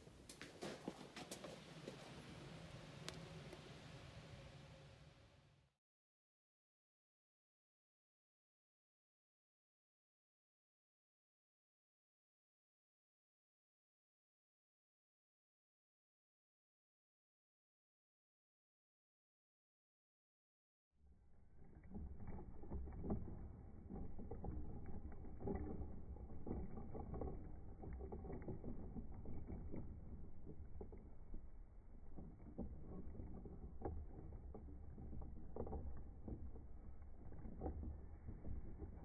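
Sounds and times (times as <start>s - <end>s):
wood creaking and knocking: 0.0s - 4.5s, 21.5s - 39.0s.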